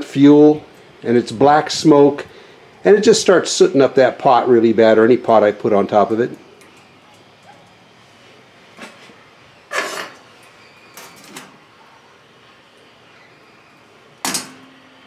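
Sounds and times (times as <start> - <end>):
metal cookware clanking: 9.7 - 10.2, 14.2 - 14.8.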